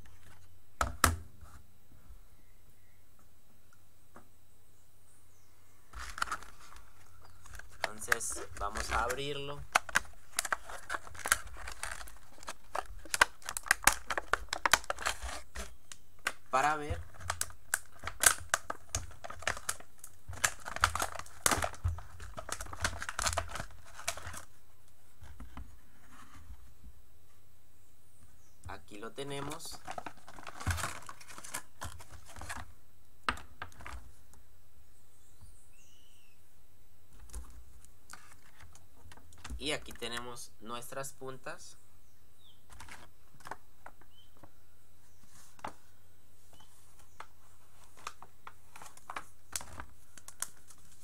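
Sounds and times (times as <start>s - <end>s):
plastic blister pack crackling: 5.9s - 24.6s, 29.2s - 32.7s, 47.0s - 51.0s.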